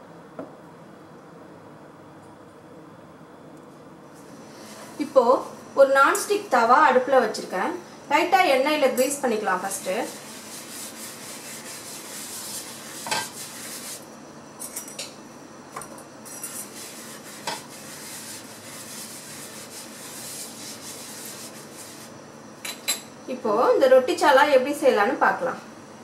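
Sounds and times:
wipe scrubbing a pan: 9.5s - 14.0s, 16.5s - 22.1s.

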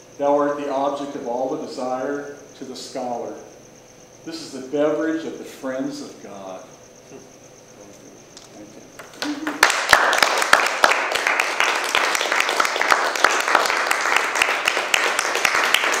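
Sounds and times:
audience applauding: 9.0s - 16.0s.

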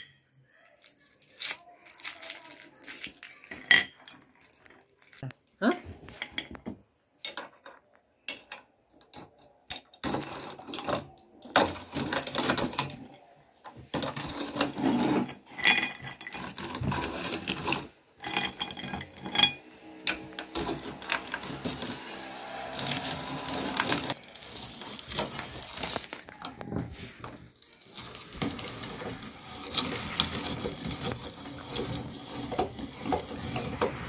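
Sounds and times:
meat grinder crunching candy: 16.3s - 17.9s, 19.9s - 34.0s.

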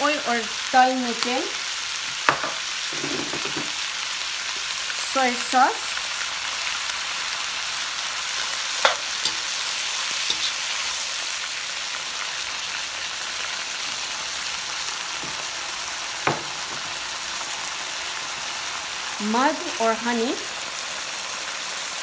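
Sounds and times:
vegetables sizzling in oil: 0.0s - 22.0s.

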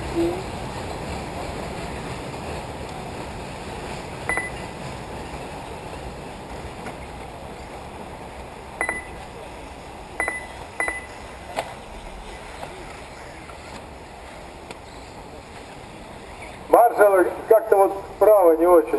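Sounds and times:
short high electronic beeps: 4.3s - 4.6s, 8.8s - 9.2s, 10.2s - 11.1s.

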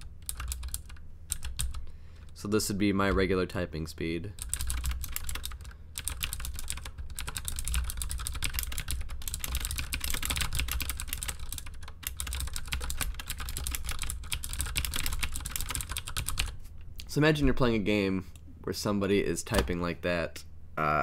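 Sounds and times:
mechanical keyboard typing: 0.0s - 1.8s, 4.4s - 16.6s.

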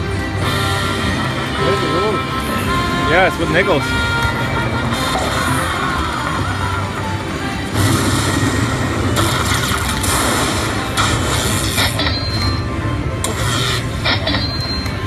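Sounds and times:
slot machine music: 0.0s - 15.0s
electronic hissing bursts: 7.7s - 12.1s.

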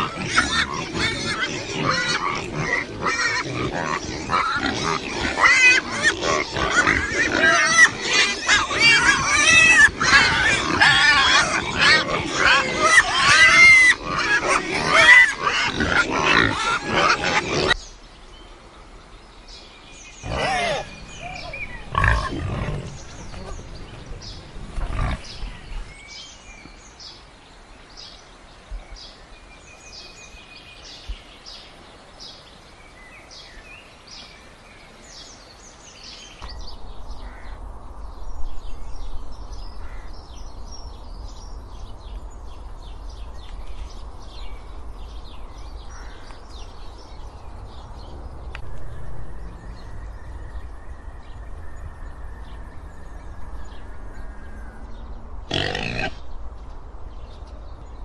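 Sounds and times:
pig grunts: 0.0s - 17.8s, 20.2s - 23.6s, 55.5s - 56.2s
piglets squealing and grunting: 0.0s - 17.8s, 20.2s - 23.5s, 55.5s - 56.2s
birds chirping: 0.0s - 58.0s.

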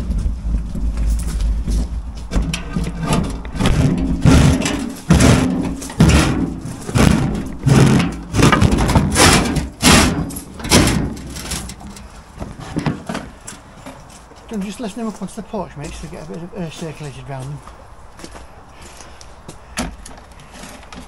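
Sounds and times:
wheelbarrow wheel rumbling on planks: 0.0s - 14.8s
concrete lintels knocking: 2.2s - 14.8s.

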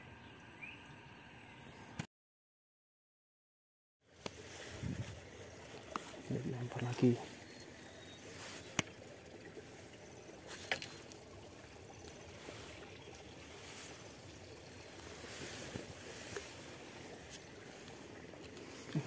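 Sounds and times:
outdoor background noise: 0.0s - 2.1s, 4.0s - 19.0s
light ticks of fishing tackle: 4.1s - 19.0s.

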